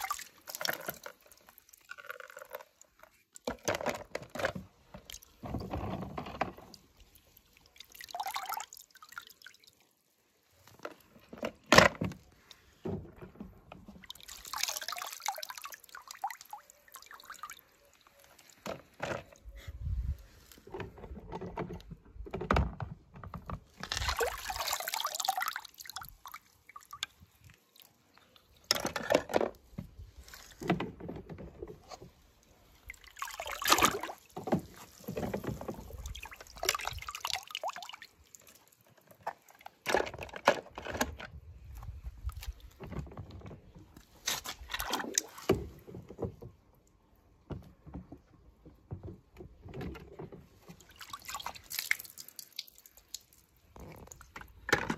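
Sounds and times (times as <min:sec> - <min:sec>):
water splashing in a tub: 0:00.0 - 0:11.2, 0:12.2 - 0:19.0, 0:23.2 - 0:28.8, 0:29.6 - 0:40.8, 0:44.1 - 0:47.2, 0:48.6 - 0:54.9.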